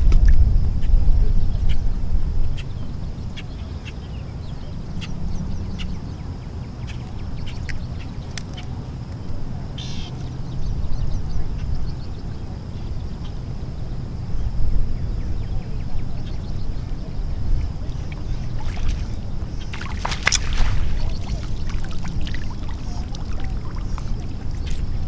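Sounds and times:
wind rumbling on microphone: 0.0 - 25.0
water splashes and drips: 17.8 - 25.0.

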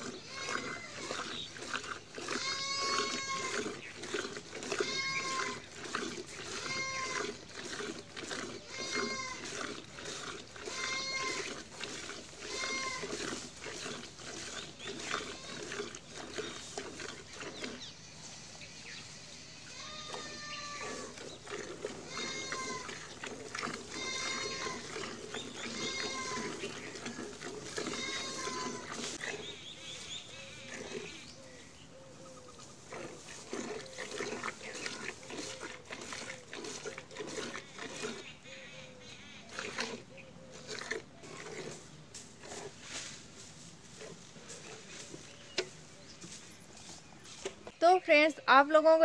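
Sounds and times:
animal bleating: 0.0 - 1.4, 2.2 - 3.7, 4.6 - 5.7, 6.5 - 7.4, 8.3 - 9.7, 10.6 - 11.6, 12.4 - 13.4, 15.0 - 15.9, 19.7 - 21.2, 21.8 - 29.2
milk squirting into steel bucket: 0.0 - 17.9, 20.1 - 29.5, 32.9 - 38.4, 39.5 - 40.0
farm animal calling: 0.0 - 43.0, 43.6 - 49.0.

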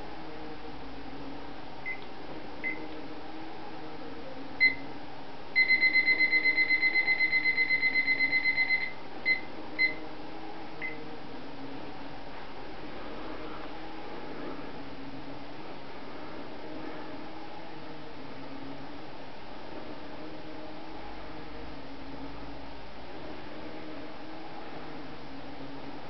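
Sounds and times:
high-pitched electronic beeps: 5.6 - 10.0.

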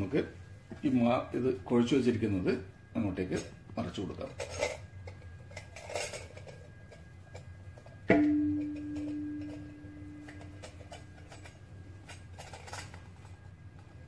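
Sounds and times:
metal bowl ringing: 8.0 - 11.7.

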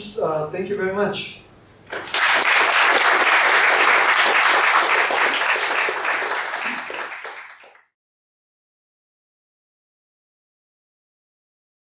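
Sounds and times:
audience applauding: 1.8 - 7.9.

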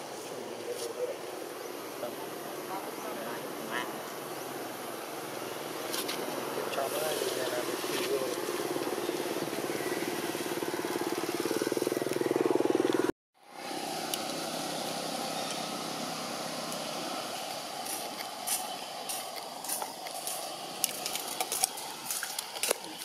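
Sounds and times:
outdoor background noise: 0.0 - 23.0
vehicle engine running: 5.2 - 23.0.

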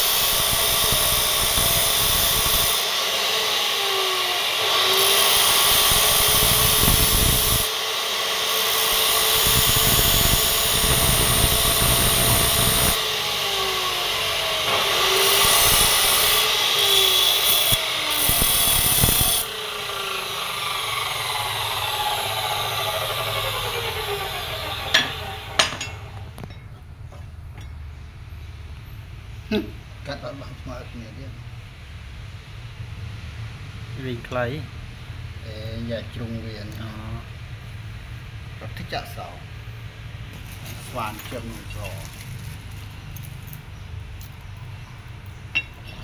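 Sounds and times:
cut-off saw motor running: 0.0 - 26.4.

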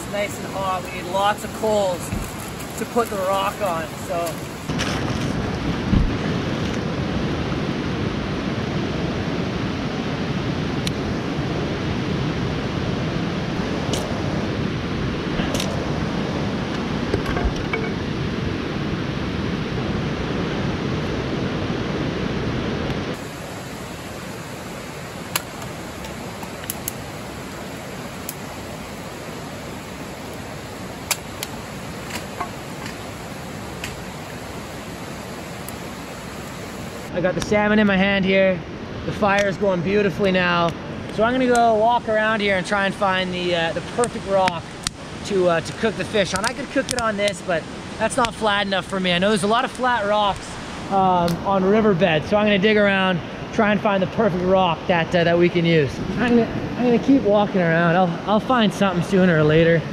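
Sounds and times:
creek water rushing: 0.0 - 59.9
sharp woody cracks and clicks: 31.0 - 33.0.

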